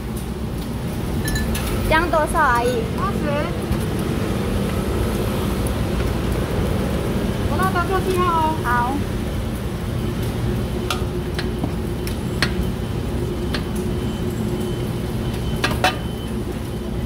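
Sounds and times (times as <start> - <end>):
ladle clinking on steel pots: 1.2 - 1.8, 15.6 - 16.1.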